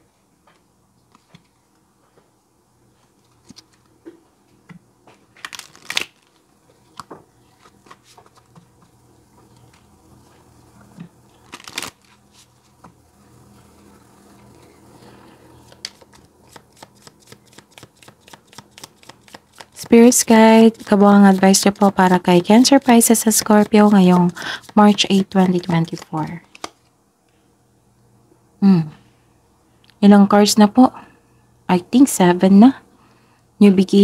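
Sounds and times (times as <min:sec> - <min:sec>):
deck of cards shuffling: 0:05.4 - 0:06.4, 0:11.4 - 0:12.7, 0:15.6 - 0:26.9
cards tapping and rustling: 0:15.6 - 0:26.8.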